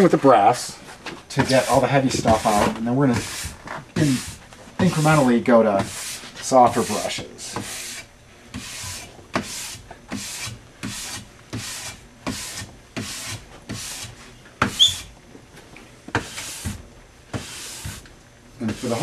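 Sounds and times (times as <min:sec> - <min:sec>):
brush scrubbing ski base: 0:01.4 - 0:14.9, 0:17.4 - 0:18.0, 0:18.6 - 0:19.0
short squeak: 0:14.8 - 0:15.1.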